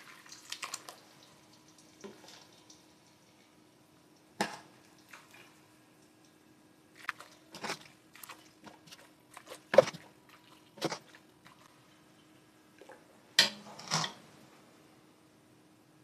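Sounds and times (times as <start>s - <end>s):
liquid splashing: 7.0s - 11.8s.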